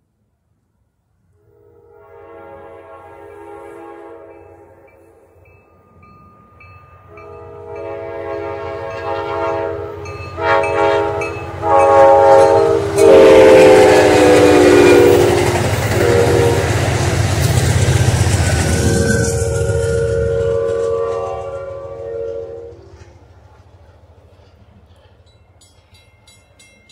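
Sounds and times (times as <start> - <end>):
train passing rumble: 0.2 - 26.9
train air horn blasts: 1.4 - 5.2, 7.1 - 17.5, 18.6 - 23.2.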